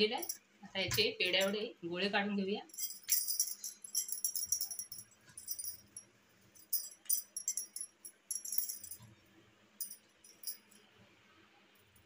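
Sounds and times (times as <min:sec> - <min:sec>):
glass bangles jingling: 0:00.0 - 0:00.4, 0:02.7 - 0:09.1, 0:09.8 - 0:10.9.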